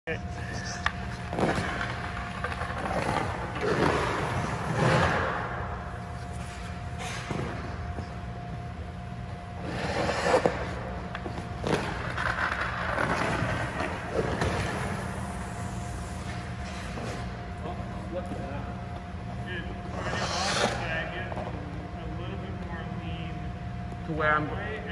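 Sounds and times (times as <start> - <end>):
steady low hum: 0.0 - 24.9
skate blades scraping ice: 0.5 - 7.7, 9.6 - 17.3, 19.9 - 20.8.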